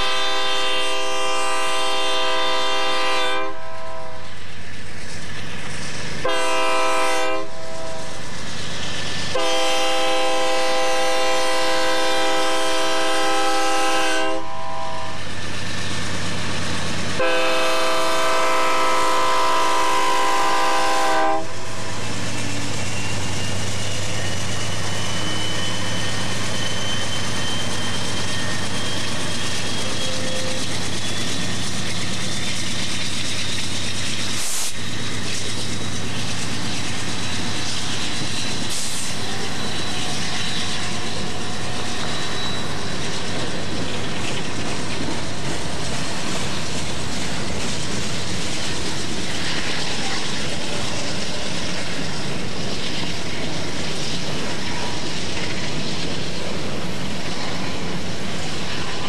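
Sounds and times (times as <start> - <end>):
diesel locomotive engine rumble: 0.0 - 59.0
wheels rolling on rails: 22.1 - 59.0.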